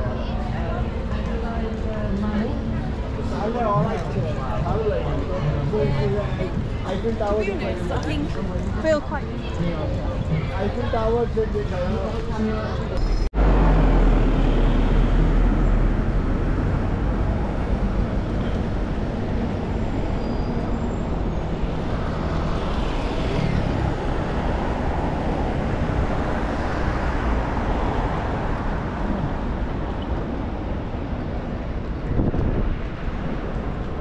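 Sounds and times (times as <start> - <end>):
cars and buses passing: 0.0 - 34.0
vehicle passing loudly: 13.4 - 18.0.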